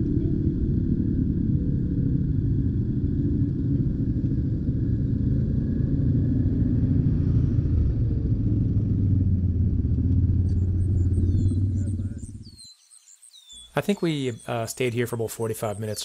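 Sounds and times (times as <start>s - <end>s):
utility vehicle engines idling: 3.7s - 12.6s, 13.8s - 16.0s.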